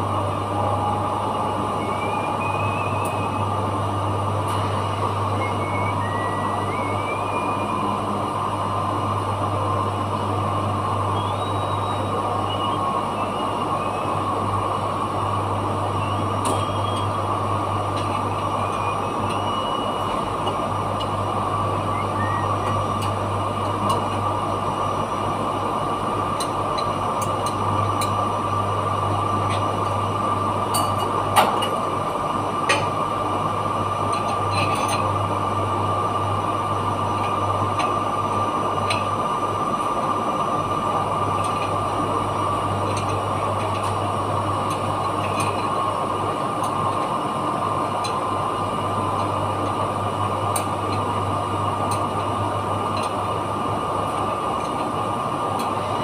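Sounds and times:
constant high whine: 0:00.0 - 0:56.0
machinery low hum: 0:00.0 - 0:56.0.

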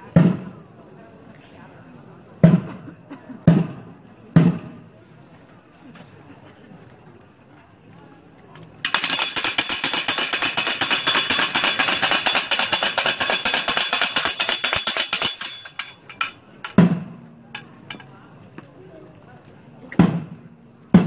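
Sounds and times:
percussion rattling: 0:08.8 - 0:18.1.

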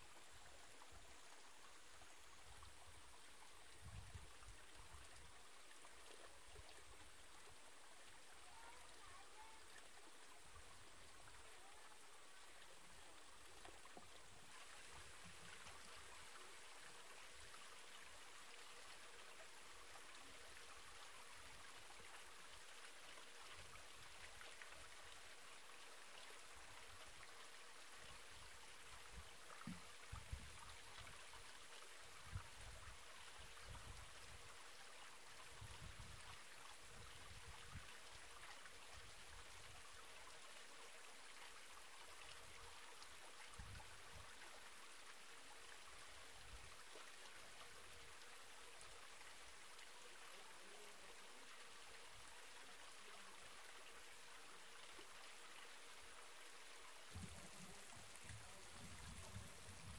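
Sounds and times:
waterfall trickling into pool: 0:00.0 - 0:59.9
soft low bumps: 0:57.1 - 0:59.9.

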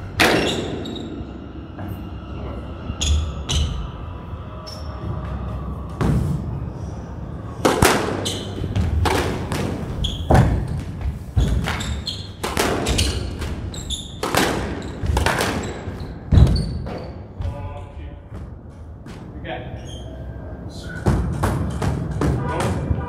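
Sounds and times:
squash ball hits: 0:00.2 - 0:00.8, 0:07.6 - 0:17.1, 0:21.0 - 0:23.0
court shoes squeaking: 0:00.2 - 0:02.0, 0:03.0 - 0:03.8, 0:04.7 - 0:05.4, 0:07.8 - 0:17.6, 0:19.8 - 0:22.4.

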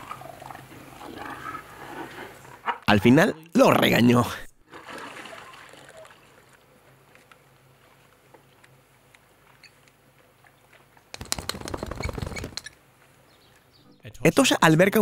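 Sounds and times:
hyena shaking wet coat: 0:11.2 - 0:12.6.

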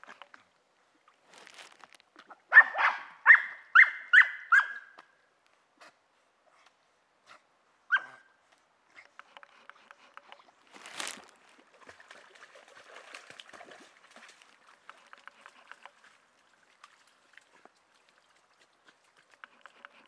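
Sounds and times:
water dripping and trickling: 0:10.0 - 0:20.0
dogs splashing in water: 0:10.2 - 0:20.0.

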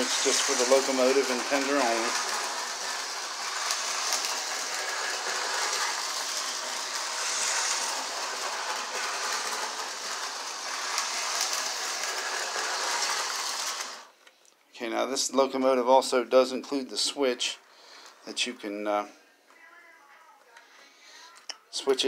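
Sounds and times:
wheels clicking over rail joints: 0:00.0 - 0:07.0
toy train motor whirring: 0:00.0 - 0:14.1.

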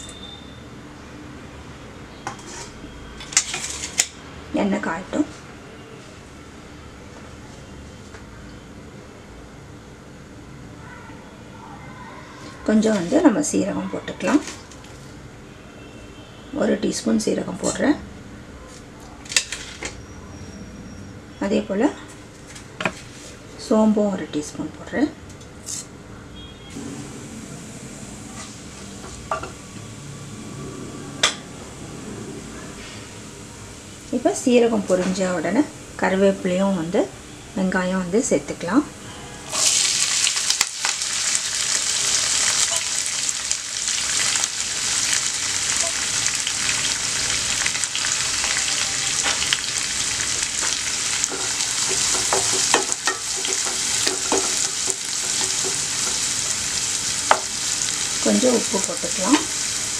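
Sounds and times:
wooden spatula scraping a pan: 0:02.3 - 0:02.8
seeds sizzling in hot oil: 0:39.5 - 0:59.9
spoon knocking against pan: 0:51.3 - 0:56.2, 0:57.3 - 0:57.5.

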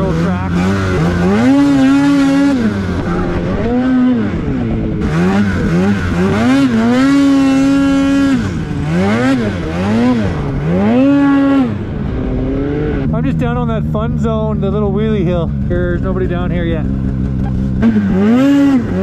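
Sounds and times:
snowmobile engine revving: 0:00.0 - 0:19.0.

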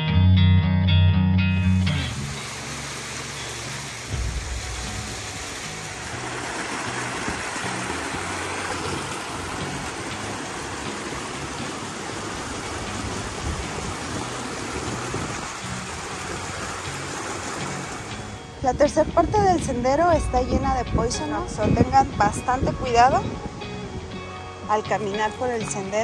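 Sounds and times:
waterfall and creek rushing: 0:01.6 - 0:18.6
wind buffeting microphone: 0:04.0 - 0:24.2.

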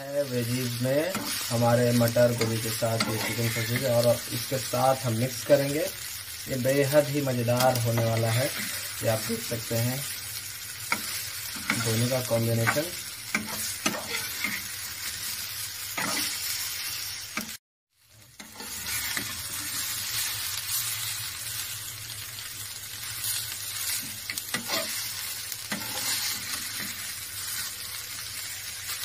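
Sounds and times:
food sizzling in a pan: 0:00.0 - 0:29.0
metal spatula scraping a pan: 0:00.6 - 0:04.2, 0:07.5 - 0:09.4, 0:10.8 - 0:15.4, 0:16.0 - 0:16.6, 0:18.4 - 0:20.2, 0:23.8 - 0:27.7.

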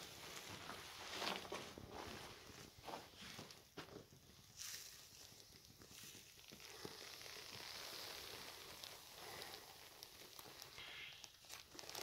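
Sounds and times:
soft scuffs: 0:00.4 - 0:05.0.

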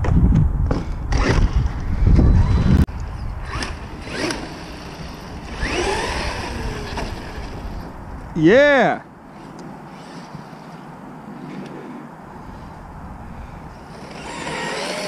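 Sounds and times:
electric motor whining: 0:01.1 - 0:07.9, 0:13.8 - 0:15.0.

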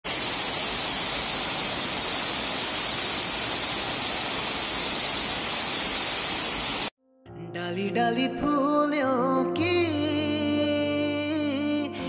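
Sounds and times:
waterfall pouring over rocks: 0:00.0 - 0:06.9.

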